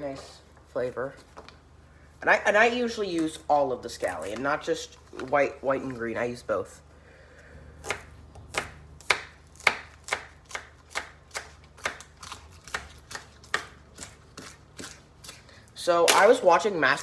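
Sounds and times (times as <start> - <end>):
knife chopping vegetables: 7.8 - 16.4.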